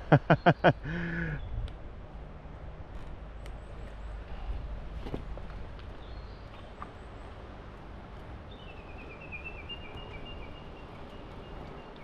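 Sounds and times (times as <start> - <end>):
wind noise rumble: 1.2 - 6.1.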